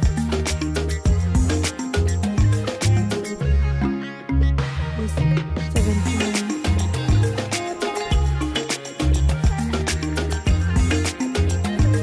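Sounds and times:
music with steady beat: 0.0 - 12.0.

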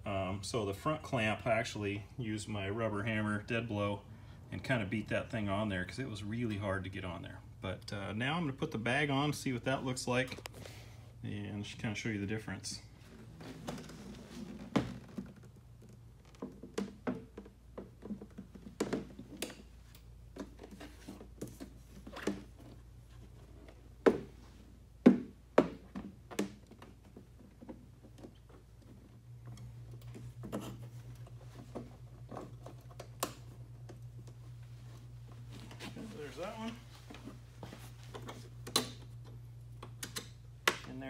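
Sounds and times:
low steady hum: 0.0 - 41.0
saddlebag knocks and clunks: 13.0 - 22.8.

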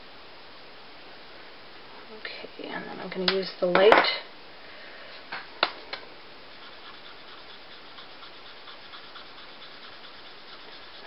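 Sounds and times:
marker tip scratching on card: 6.6 - 11.0.

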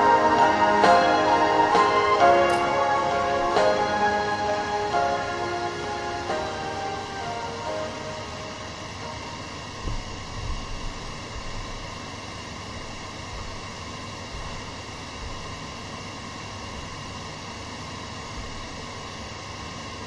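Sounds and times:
microphone hiss: 0.0 - 20.0.

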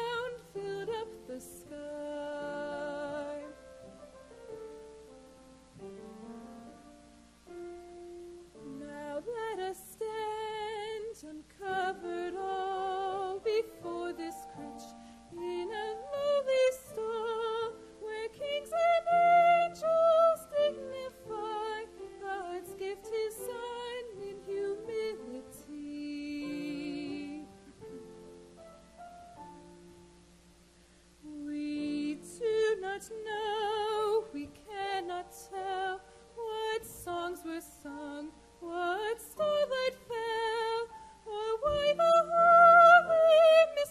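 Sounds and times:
woman singing with vibrato: 0.0 - 3.6, 8.6 - 27.9, 31.2 - 43.9
gentle piano chords: 0.0 - 43.9.

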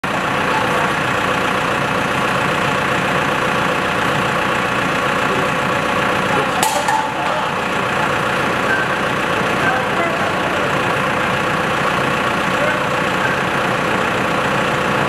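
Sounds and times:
diesel forklift engine idling: 0.0 - 15.0
sharp metallic clank: 6.6 - 7.4.

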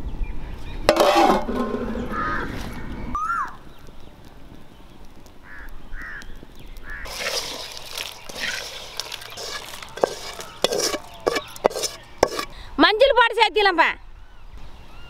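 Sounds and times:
metal spatula scraping a pan: 0.9 - 2.1, 7.1 - 12.6
bird calls: 5.4 - 12.7.

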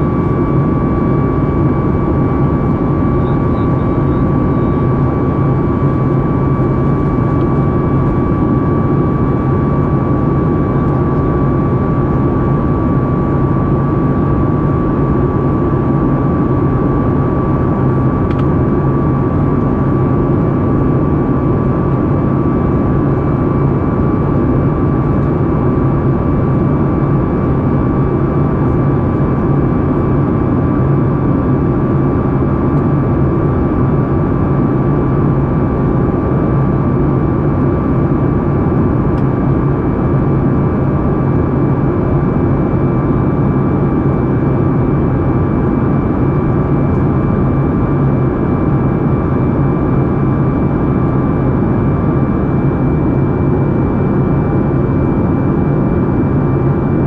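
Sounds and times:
airplane cabin roar: 0.0 - 57.0
high engine tone: 2.8 - 5.4.

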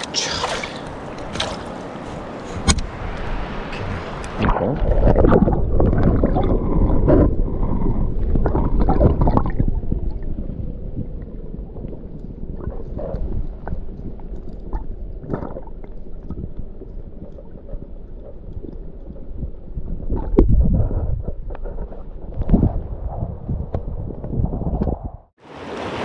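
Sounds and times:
river water rushing: 0.0 - 4.6, 25.4 - 26.0
wind rumbling on microphone: 0.0 - 26.0.

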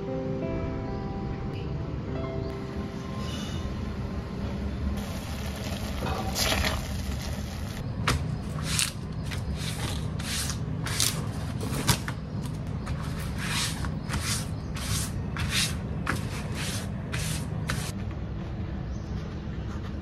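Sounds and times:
low hum: 0.0 - 9.5.

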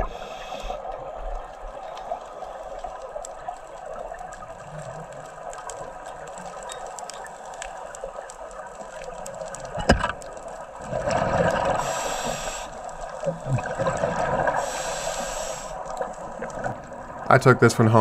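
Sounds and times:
underwater regulator breathing: 0.0 - 0.8, 11.3 - 16.2
bubbling exhaled air: 10.8 - 17.3.

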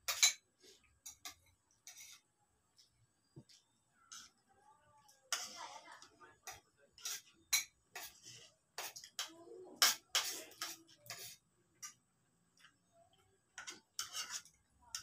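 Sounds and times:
spoons clinking on plates: 0.0 - 2.2, 6.4 - 12.0, 13.6 - 15.0.

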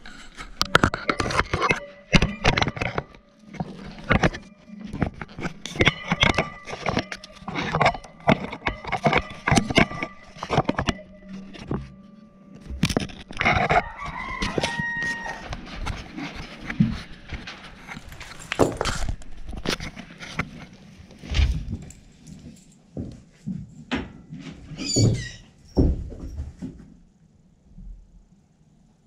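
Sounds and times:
knocks and thumps: 23.0 - 27.0.

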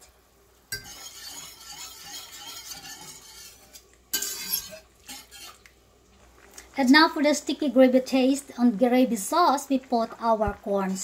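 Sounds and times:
whisk scraping metal pan: 0.7 - 5.7
whisk swishing through liquid: 0.7 - 5.7.

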